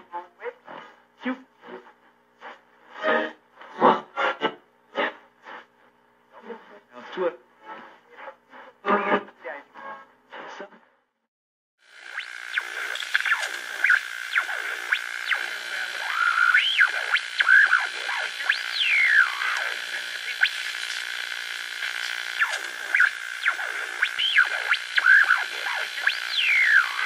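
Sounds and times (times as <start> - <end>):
steady high synth drone: 11.9 - 27.0
swooping synthesizer glides: 12.0 - 27.0.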